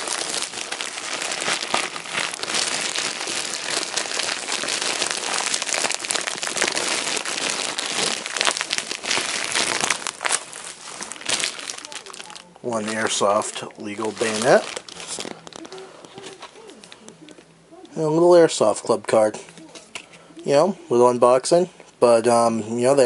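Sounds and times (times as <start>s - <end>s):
plastic packaging crinkling: 0.0s - 17.4s.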